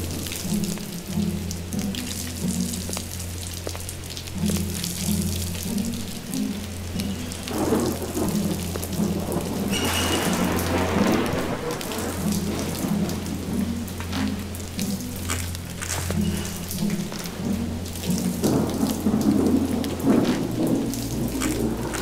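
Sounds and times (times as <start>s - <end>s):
heavy rain: 0.0s - 22.0s
steady low drone: 0.0s - 22.0s
thunder rolling: 7.2s - 15.3s, 16.1s - 22.0s.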